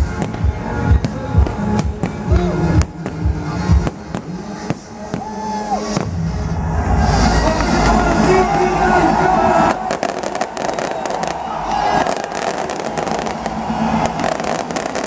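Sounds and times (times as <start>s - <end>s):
electronic dance music: 0.0s - 15.0s
fireworks bangs: 9.6s - 15.0s.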